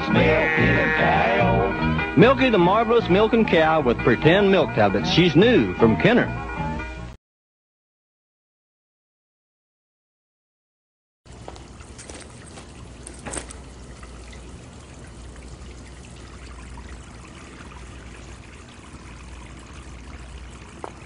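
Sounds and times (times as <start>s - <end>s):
tap water running into basin: 11.3s - 21.0s.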